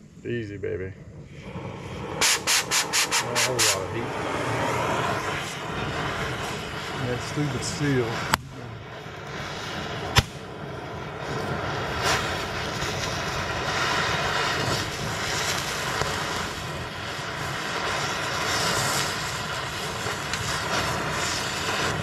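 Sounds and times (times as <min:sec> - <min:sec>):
cutting torch blowing: 0:01.0 - 0:22.0
sharp pop: 0:02.2 - 0:03.8, 0:08.3 - 0:08.6, 0:10.1 - 0:10.4.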